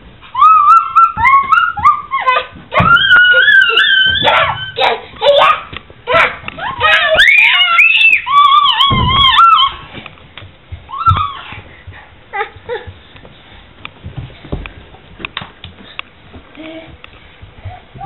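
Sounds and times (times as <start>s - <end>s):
baby squealing: 0.4s - 5.5s, 6.6s - 9.8s.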